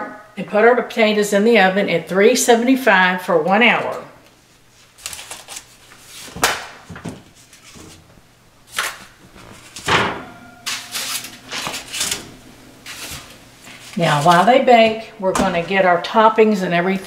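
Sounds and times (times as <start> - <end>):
foil rustling: 4.6 - 9.9, 10.7 - 12.2, 12.8 - 14.6
oven door opening: 8.9 - 15.8
clunks on metal oven rack: 9.8 - 12.4.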